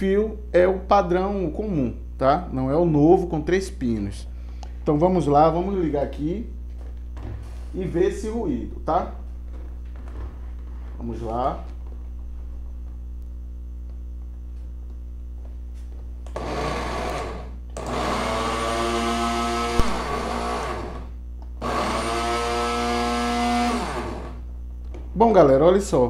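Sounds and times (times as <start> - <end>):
blender motor whine: 16.2 - 24.4.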